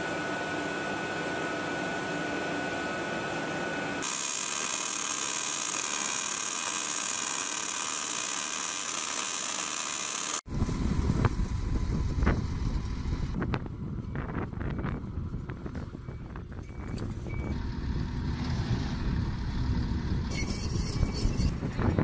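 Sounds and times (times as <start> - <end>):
industrial machinery hum: 0.0 - 20.4
wind rumbling on microphone: 10.5 - 22.0.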